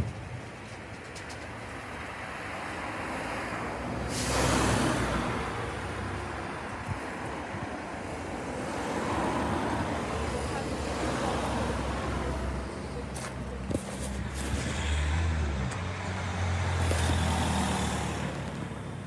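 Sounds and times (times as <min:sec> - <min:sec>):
rush of hissing: 0:04.0 - 0:05.1.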